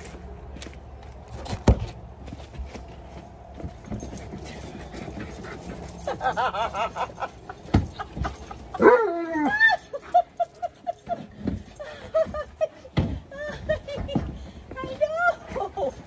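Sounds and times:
dogs whining and yipping: 3.8 - 14.5.

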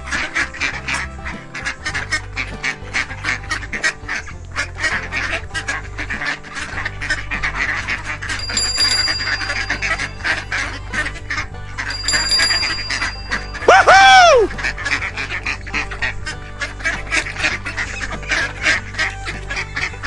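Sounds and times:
background music with bass line: 0.0 - 20.0
duck quacking: 0.1 - 8.2.

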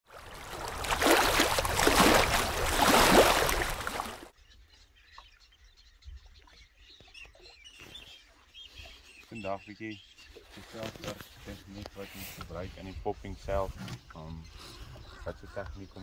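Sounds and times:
rushing water: 0.0 - 4.3.

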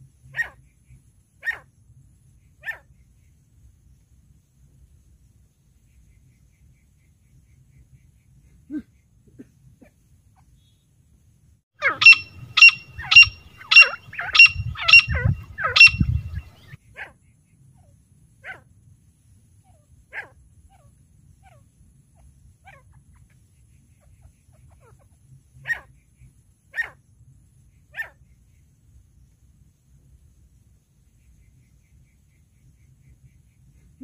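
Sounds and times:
francolin calling: 11.8 - 16.8.

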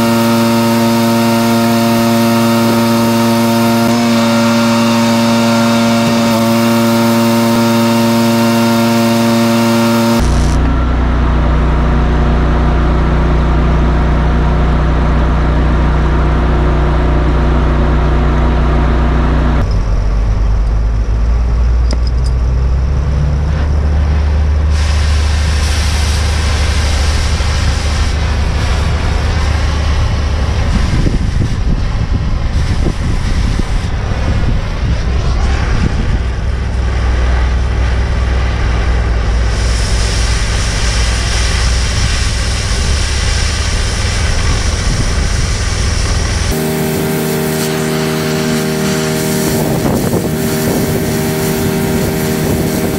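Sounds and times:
cutting torch hissing: 0.0 - 10.6, 24.5 - 52.9
engine rumbling: 0.0 - 52.9.

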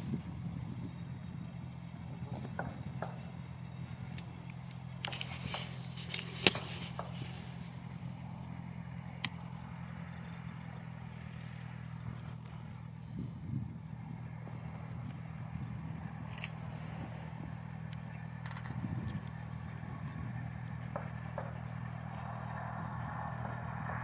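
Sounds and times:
propeller aircraft engine idling: 0.0 - 24.0.

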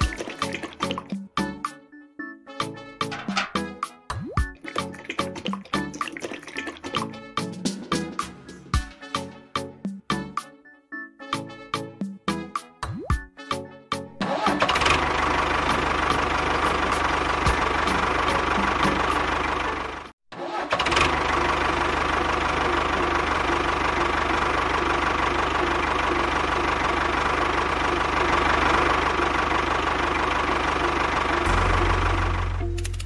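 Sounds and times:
tractor engine running: 0.0 - 1.5, 3.0 - 3.9, 14.2 - 33.0.

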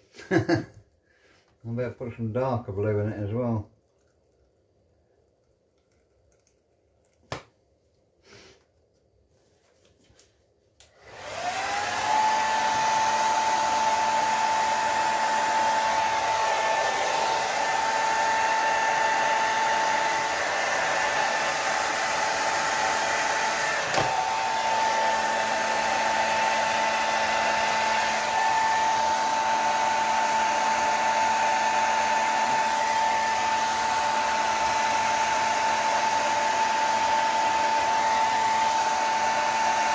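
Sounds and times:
hair dryer whining: 0.0 - 0.6, 10.8 - 39.9.

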